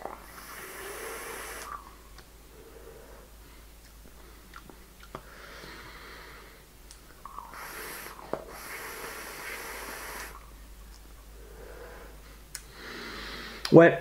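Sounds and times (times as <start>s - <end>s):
airy hiss of vape drag: 0.0s - 1.9s, 7.3s - 10.5s
breathy exhale: 0.0s - 3.6s, 5.2s - 6.6s, 7.3s - 10.5s, 11.4s - 13.7s.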